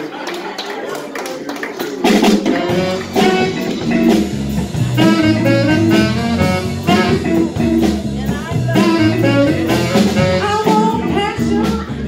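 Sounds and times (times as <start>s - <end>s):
live funky blues band: 1.8s - 12.0s.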